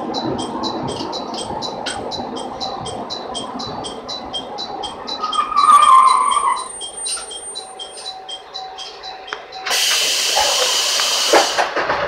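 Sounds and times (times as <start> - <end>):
rapid high ringing: 0.0 - 9.6
pneumatic door hiss: 9.7 - 11.8.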